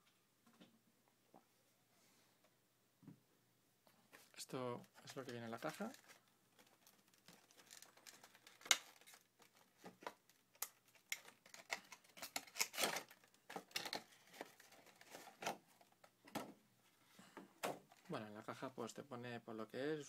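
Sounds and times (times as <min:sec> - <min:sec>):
plastic packaging crinkling: 0:04.1 - 0:16.1.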